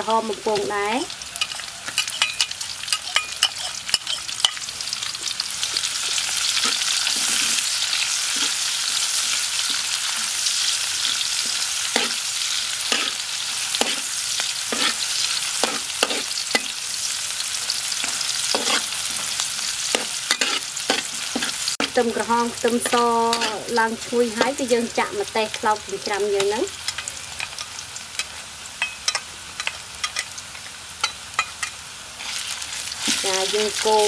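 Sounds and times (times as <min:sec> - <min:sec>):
garlic sizzling in hot oil: 0:00.0 - 0:34.0
metal spatula scraping a wok: 0:01.4 - 0:04.8, 0:05.9 - 0:17.2, 0:17.8 - 0:24.6, 0:31.0 - 0:34.0.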